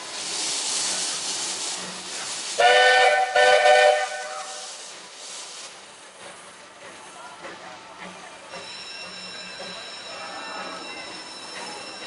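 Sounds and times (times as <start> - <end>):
steam hissing: 0.0 - 12.0
steam whistle blasts: 2.6 - 4.7.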